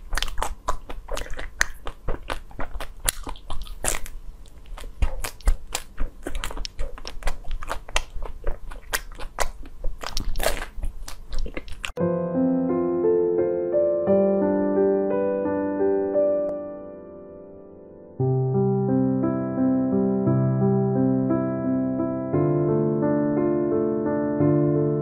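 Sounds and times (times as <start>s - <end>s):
crunching frozen ice bar: 0.0s - 12.0s.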